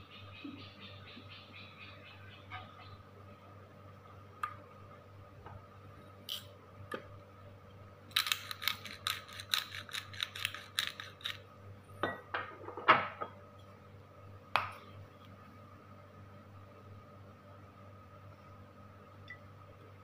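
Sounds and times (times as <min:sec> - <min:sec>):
pepper grinder ratcheting clicks: 0:08.1 - 0:11.4.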